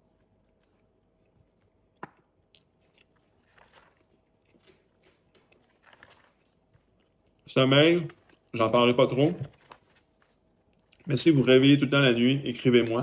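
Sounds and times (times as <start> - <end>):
chewing food: 0.0 - 7.5, 8.1 - 8.7, 9.4 - 11.2.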